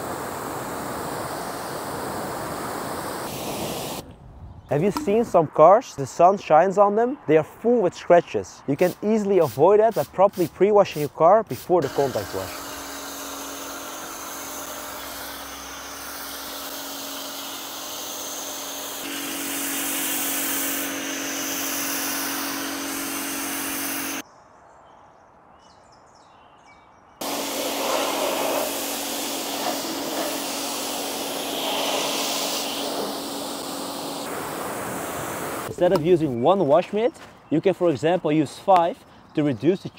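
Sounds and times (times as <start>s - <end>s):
pressure washer motor hum: 0.0s - 4.0s, 11.8s - 24.2s, 27.2s - 36.0s
water spray hissing: 0.0s - 4.1s, 8.7s - 24.2s, 27.2s - 36.2s.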